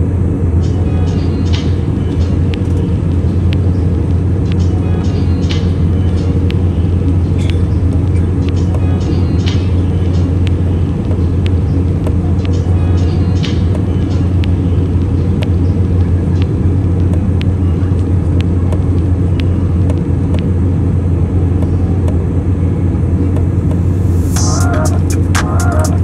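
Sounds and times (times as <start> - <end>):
jet engine cabin rumble: 0.0 - 26.0
music: 24.2 - 26.0.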